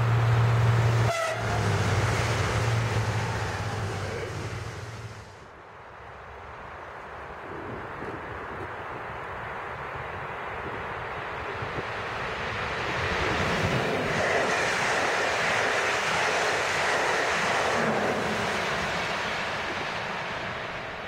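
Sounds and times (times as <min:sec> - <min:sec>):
passenger train passing at speed: 0:00.0 - 0:21.0.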